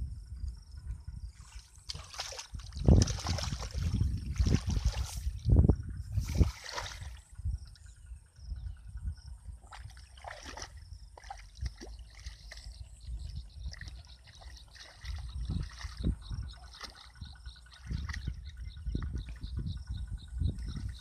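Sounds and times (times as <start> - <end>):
footsteps squelching in mud: 1.8 - 5.4
splashes: 1.8 - 5.4, 6.2 - 7.3, 9.6 - 12.8, 13.7 - 18.3.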